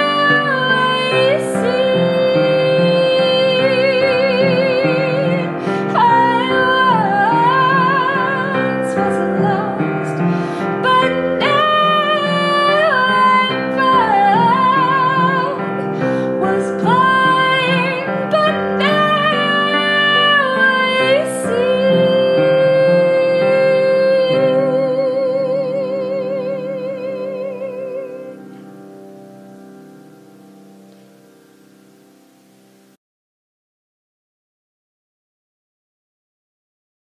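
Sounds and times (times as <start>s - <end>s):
woman singing with vibrato: 0.0s - 28.6s
instrumental accompaniment: 0.0s - 33.0s.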